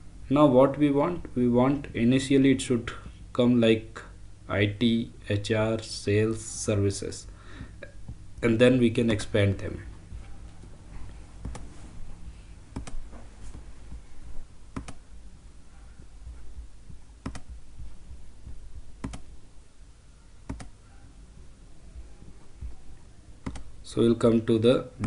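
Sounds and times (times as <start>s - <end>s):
low steady hum: 0.0s - 25.0s
computer mouse clicking: 11.4s - 11.7s, 12.7s - 13.0s, 14.7s - 15.0s, 17.2s - 17.6s, 19.0s - 19.3s, 20.5s - 20.8s, 23.4s - 23.7s.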